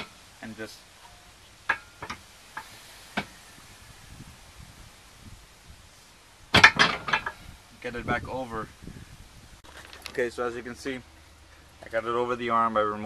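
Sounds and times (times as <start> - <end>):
metal clicks and knocks: 6.6 - 7.4
faint handling noise: 9.6 - 10.4.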